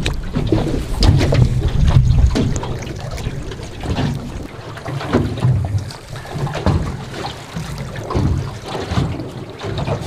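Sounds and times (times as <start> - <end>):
water slapping boat hull: 0.0 - 10.0
wind buffeting microphone: 0.0 - 10.0.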